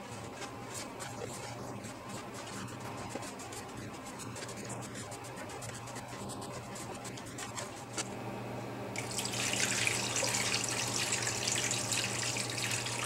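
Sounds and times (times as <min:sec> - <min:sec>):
water pouring and splashing: 0:09.0 - 0:13.0.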